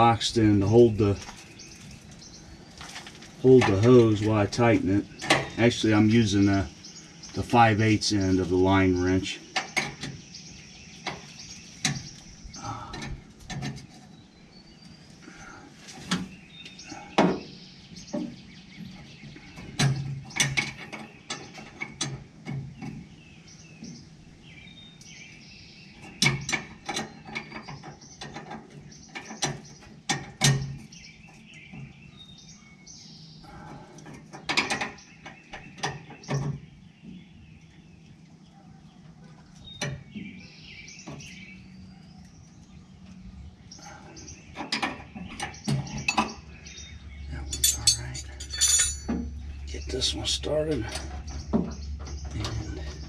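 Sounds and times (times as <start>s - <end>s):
metal wrenches clicking: 47.4s - 49.2s.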